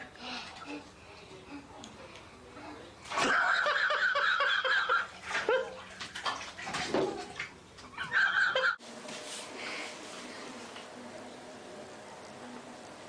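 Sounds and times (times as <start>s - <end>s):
water splashing in a bathtub: 3.0s - 8.6s.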